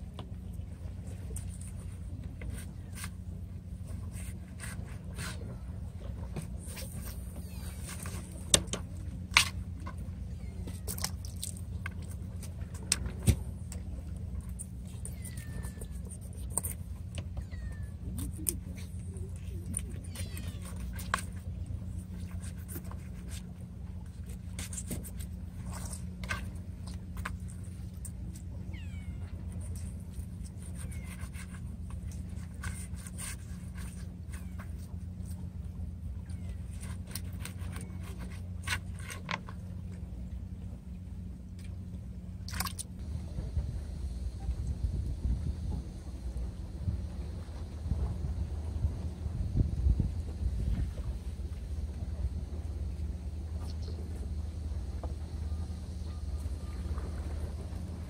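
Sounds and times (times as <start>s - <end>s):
low background rumble: 0.0s - 58.0s
knife scraping fish: 14.4s - 17.4s, 18.1s - 27.7s, 29.6s - 35.4s, 36.7s - 39.6s.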